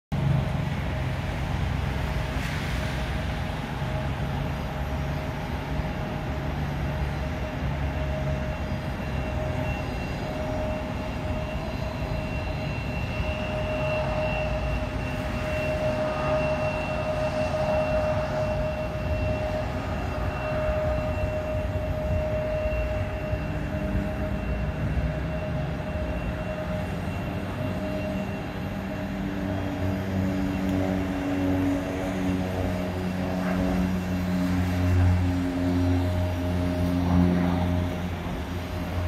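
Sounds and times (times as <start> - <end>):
turboprop engine whine: 0.1 - 39.0.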